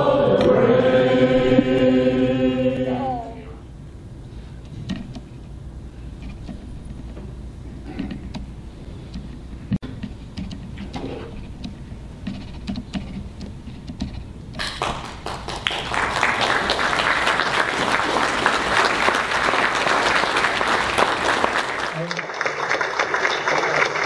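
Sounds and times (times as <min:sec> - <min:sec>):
audience applause: 0:14.6 - 0:24.0.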